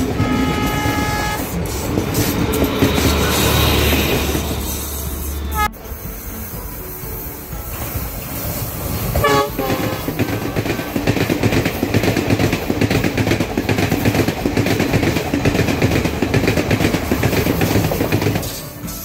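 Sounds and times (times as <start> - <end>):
train horn blast: 0.0 - 1.7, 3.0 - 11.1
wheels clattering over rail joints: 0.0 - 5.5, 7.5 - 19.0
train rumbling past: 0.0 - 19.0.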